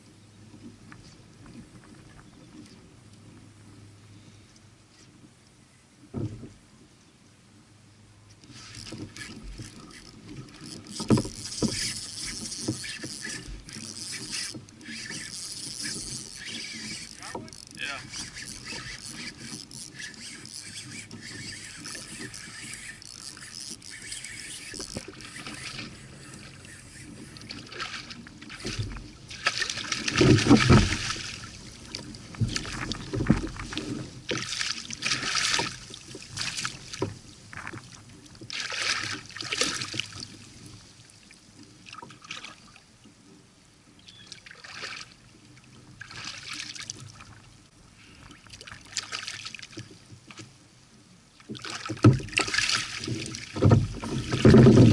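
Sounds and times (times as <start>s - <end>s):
steady wash of water: 8.5s - 42.8s, 46.0s - 47.5s, 51.5s - 54.9s
fish thrashing and splashing: 8.8s - 40.3s, 51.5s - 54.9s.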